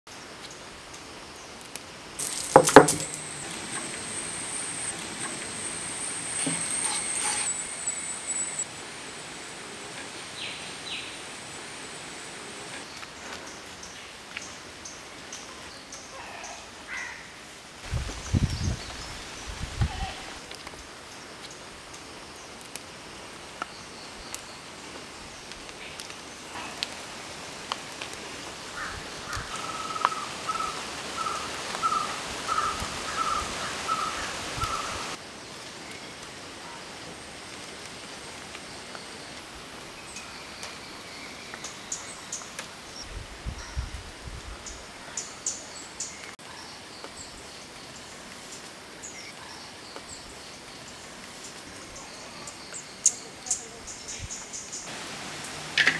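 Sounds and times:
steady background hiss: 0.1s - 55.9s
high chirps: 2.2s - 8.7s.

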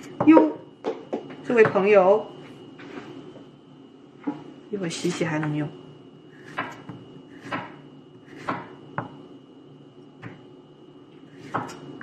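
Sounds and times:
knife chopping on wooden board: 6.4s - 9.2s, 11.3s - 11.9s.

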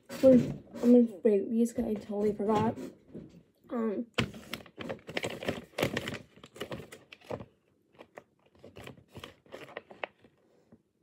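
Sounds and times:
plastic pouch crinkling: 4.5s - 10.3s.

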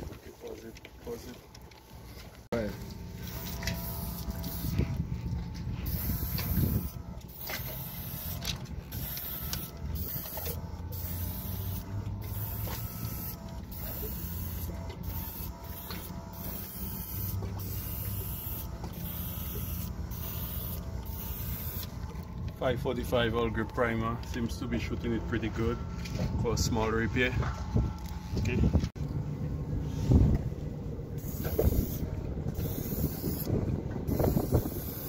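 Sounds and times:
air compressor running: 2.0s - 28.9s, 29.8s - 35.0s
airbrush spraying hiss: 32.6s - 33.5s.

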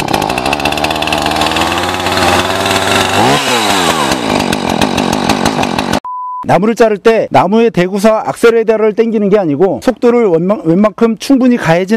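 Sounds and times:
chainsaw engine revving: 0.0s - 6.0s.

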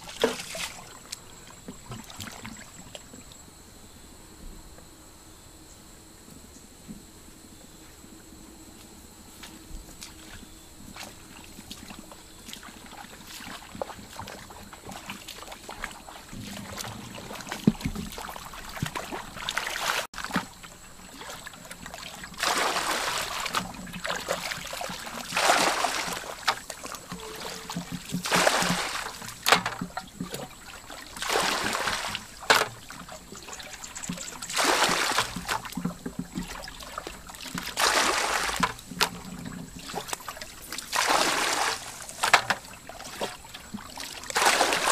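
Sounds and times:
hands splashing in muddy water: 0.0s - 1.2s, 11.0s - 44.9s.

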